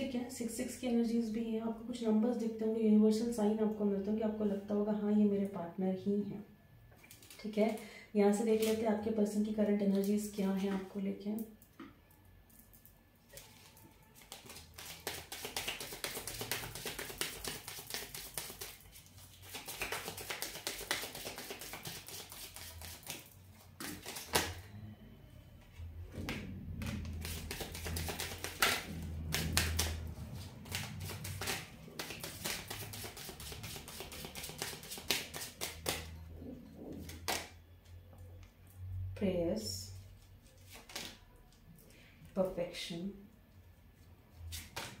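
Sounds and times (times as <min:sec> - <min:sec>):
cards being shuffled: 0:13.3 - 0:24.6, 0:26.8 - 0:36.1, 0:40.5 - 0:41.2, 0:44.5 - 0:45.0.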